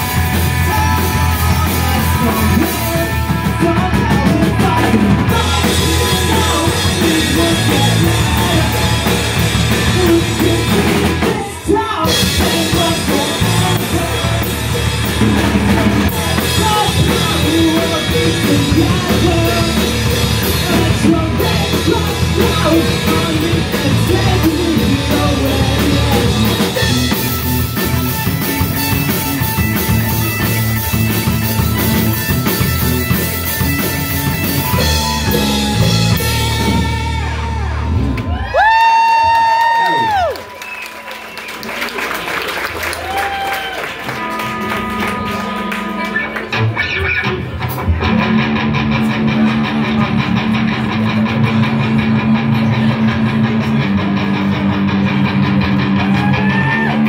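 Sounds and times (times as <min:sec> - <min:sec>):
electric bass: 0:00.0 - 0:40.8, 0:42.8 - 0:57.0
drum kit: 0:00.0 - 0:40.9, 0:42.6 - 0:57.0
electric guitar: 0:00.0 - 0:41.6, 0:42.6 - 0:57.0
lead vocalist singing: 0:00.2 - 0:27.0.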